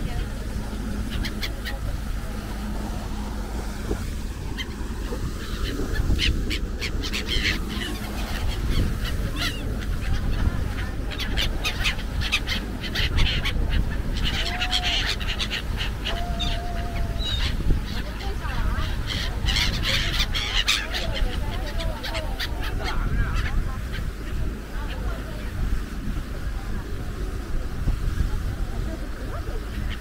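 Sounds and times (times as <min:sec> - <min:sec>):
low rumble: 0:00.0 - 0:15.0
gulls calling: 0:00.0 - 0:30.0.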